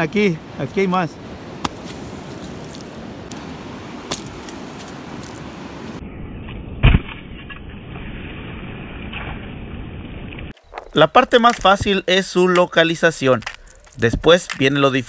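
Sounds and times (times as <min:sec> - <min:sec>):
rushing wind: 0:00.0 - 0:11.0
feet stamping on wet sand: 0:01.5 - 0:05.6.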